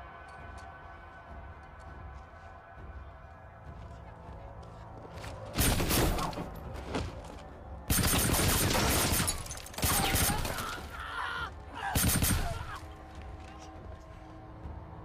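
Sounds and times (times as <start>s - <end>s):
low hum of film score: 0.0s - 15.0s
gunfire: 5.6s - 6.5s, 7.9s - 10.8s, 12.0s - 12.8s.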